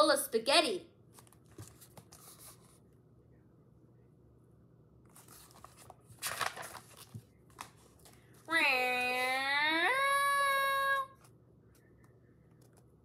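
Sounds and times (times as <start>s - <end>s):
paper pages rustling: 1.1s - 2.8s, 5.0s - 8.5s.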